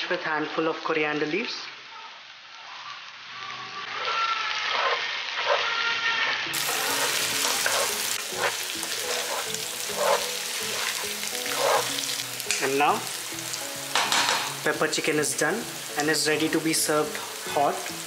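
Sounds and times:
chicken sizzling in a pan: 0:00.0 - 0:18.0
spatula scraping a pan: 0:03.8 - 0:12.6
spatula knocking against pan: 0:13.9 - 0:14.6.

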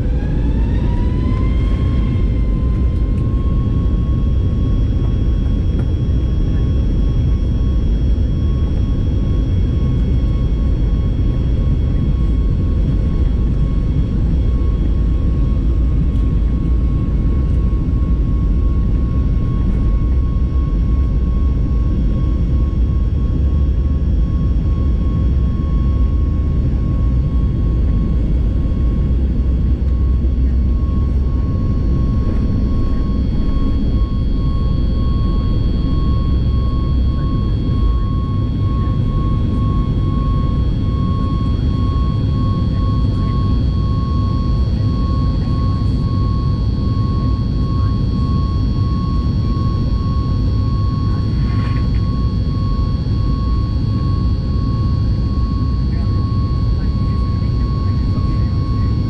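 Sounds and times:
high whining engine tones: 0:00.0 - 0:08.0, 0:19.8 - 0:59.0
jet engine rumble: 0:00.0 - 0:59.0.

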